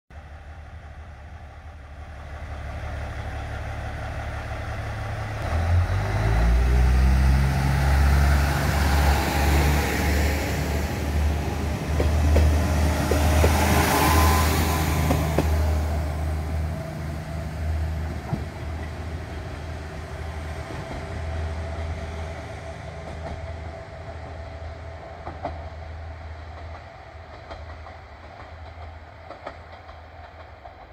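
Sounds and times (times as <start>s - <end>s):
diesel railcar engine: 0.1s - 30.9s
train wheel clicks: 11.7s - 13.9s, 26.5s - 30.9s.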